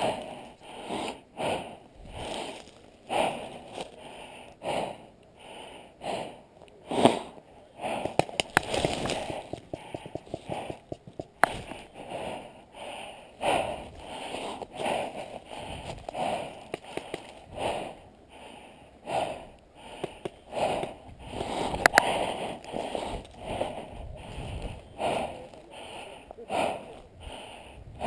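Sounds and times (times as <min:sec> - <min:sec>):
person breathing: 0:00.0 - 0:28.0
sharp clicks: 0:07.9 - 0:12.1, 0:14.0 - 0:17.5, 0:19.9 - 0:23.7.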